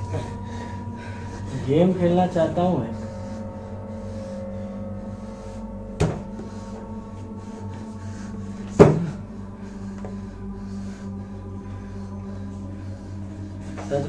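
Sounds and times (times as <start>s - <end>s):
low steady hum with held tones: 0.0s - 14.0s.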